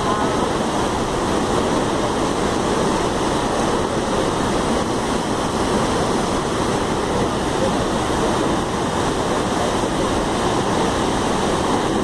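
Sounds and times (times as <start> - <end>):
torrent of water roaring: 0.0 - 12.0.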